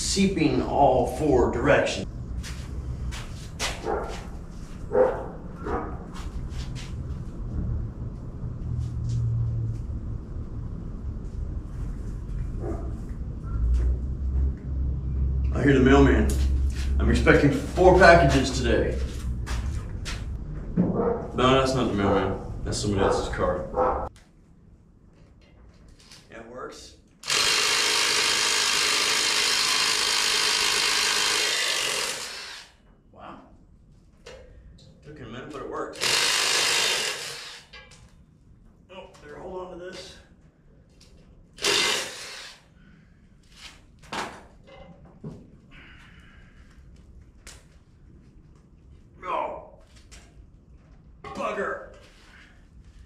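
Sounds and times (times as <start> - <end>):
dog barking: 3.8 - 4.2, 4.9 - 6.0, 20.9 - 21.4, 23.0 - 24.1
low rumble: 5.3 - 24.1
power tool running: 27.2 - 32.8, 36.0 - 37.8, 41.6 - 42.6.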